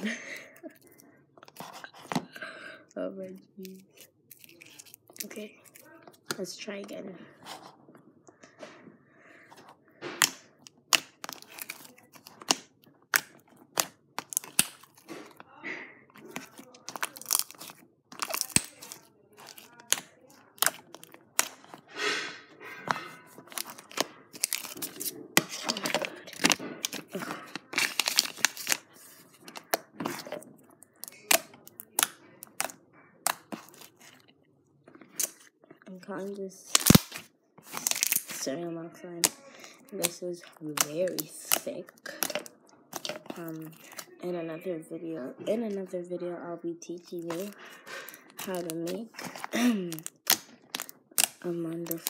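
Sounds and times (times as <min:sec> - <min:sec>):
slime clicking and popping: 0:10.2 - 0:15.0, 0:16.4 - 0:21.7, 0:31.0 - 0:33.9, 0:36.7 - 0:38.4, 0:48.1 - 0:52.0.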